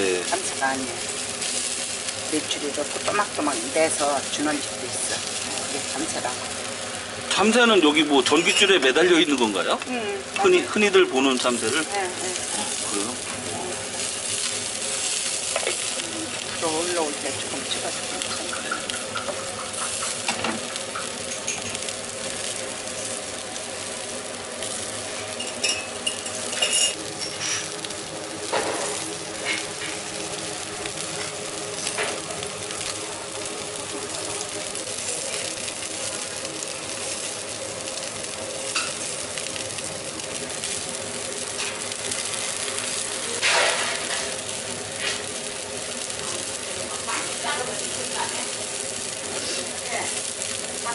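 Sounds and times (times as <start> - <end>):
birds sizzling on a grill: 0.0 - 50.9
steady hum: 0.0 - 50.9
dishes clinking: 25.4 - 27.7.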